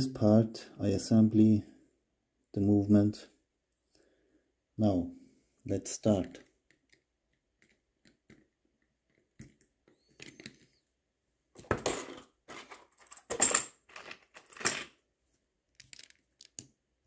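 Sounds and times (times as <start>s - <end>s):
metal parts clattering: 11.8s - 15.0s
small metal tools clinking: 11.8s - 15.0s.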